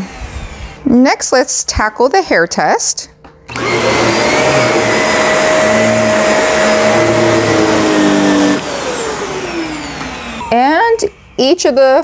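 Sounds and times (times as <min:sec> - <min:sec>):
vacuum motor spinning down: 0:00.0 - 0:00.8, 0:03.5 - 0:10.7
vacuum cleaner running: 0:00.0 - 0:00.9, 0:03.5 - 0:11.1.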